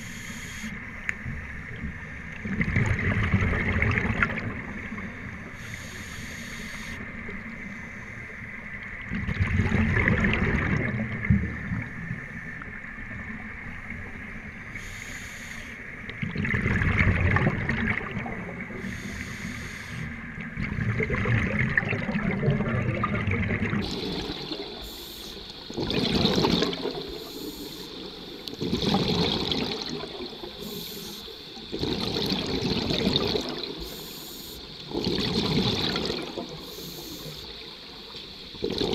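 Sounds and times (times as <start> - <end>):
scuba regulator breathing: 0.0 - 0.8, 5.5 - 7.0, 14.8 - 15.8, 18.7 - 20.2, 23.8 - 25.7, 27.0 - 28.6, 30.3 - 31.7, 33.8 - 34.8, 36.5 - 37.6
faint high whine: 0.0 - 2.3, 4.7 - 8.9, 11.7 - 16.1, 23.8 - 25.8, 26.5 - 28.7, 29.8 - 31.8, 33.7 - 35.0, 36.1 - 38.6
air bubbles gurgling: 2.4 - 4.8, 9.1 - 11.9, 16.1 - 18.9, 20.4 - 25.0, 25.6 - 30.8, 31.6 - 33.9, 34.8 - 37.8, 38.5 - 38.9.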